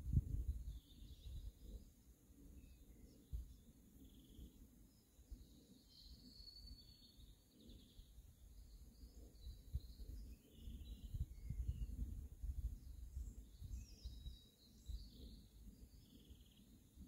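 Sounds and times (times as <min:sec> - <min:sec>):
wind rumbling on microphone: 0:00.0 - 0:04.5, 0:07.6 - 0:17.0
birds chirping: 0:00.6 - 0:12.1, 0:12.7 - 0:17.0.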